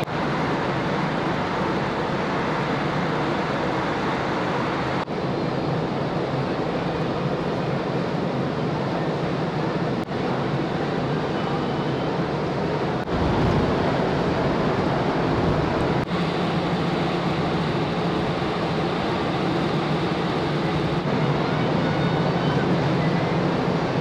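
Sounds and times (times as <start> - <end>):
low engine hum: 0.0 - 24.0
wind and water rushing: 12.2 - 24.0.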